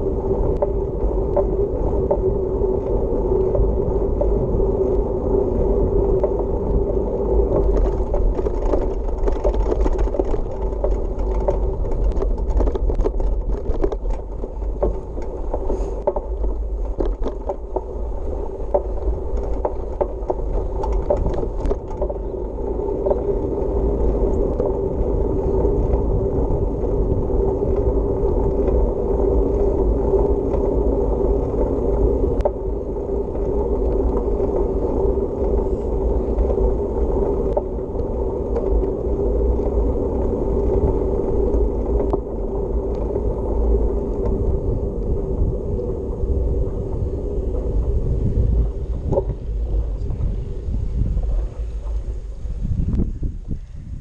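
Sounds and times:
bicycle rattling over rough ground: 0.0 - 54.0
tyres rolling on pavement: 0.0 - 54.0.

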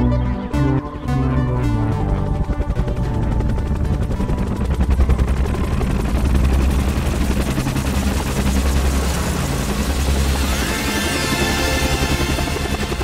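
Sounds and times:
electronic music with deep bass: 0.0 - 4.8.

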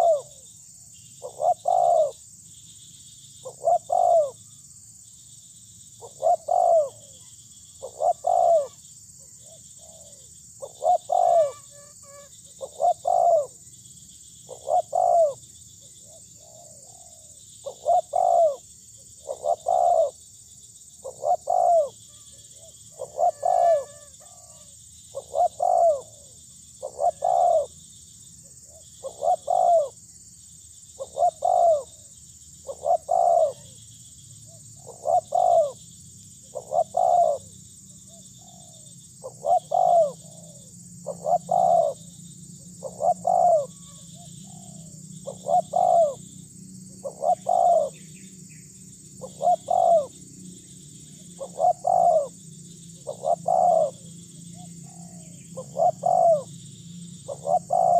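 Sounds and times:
dove cooing: 0.0 - 0.4, 1.2 - 2.2, 3.4 - 4.4, 6.0 - 13.6, 14.4 - 20.2, 21.0 - 27.8, 28.4 - 30.0, 31.0 - 32.0, 32.6 - 33.8, 34.5 - 35.8, 36.5 - 37.5, 38.1 - 42.1, 42.7 - 46.2, 46.9 - 48.1, 49.2 - 50.2, 51.2 - 56.6, 57.2 - 57.9.

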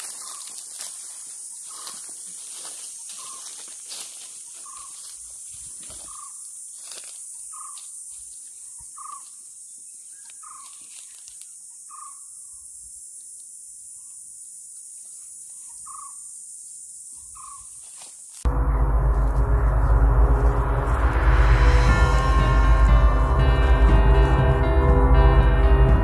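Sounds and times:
footsteps rustling: 0.0 - 11.5, 17.7 - 25.7.

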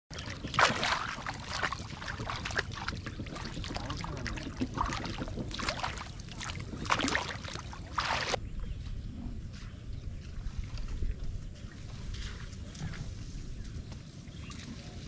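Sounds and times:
shallow water splashing: 0.1 - 8.4.

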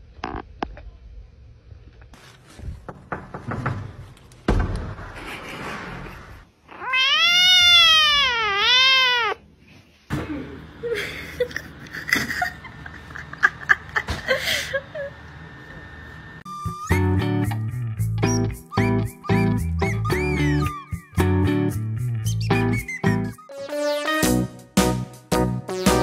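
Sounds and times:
kitten meowing: 6.7 - 9.4.

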